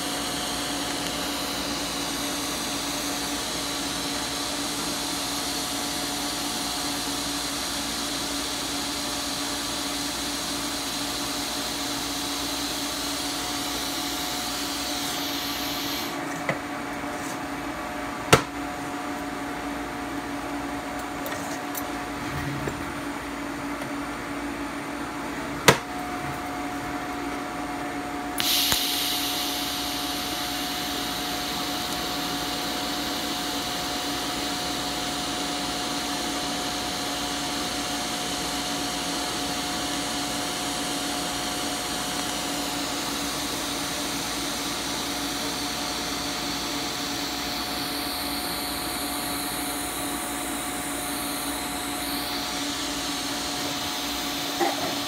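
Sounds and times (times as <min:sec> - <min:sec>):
welding arc hissing: 0:00.0 - 0:05.1, 0:11.0 - 0:16.2, 0:28.4 - 0:36.3, 0:45.0 - 0:55.0.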